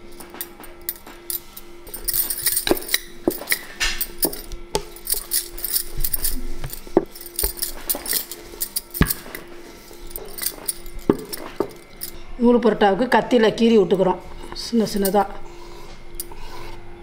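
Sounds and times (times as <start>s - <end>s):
metal bangles jingling: 0.0s - 12.2s, 14.9s - 15.3s.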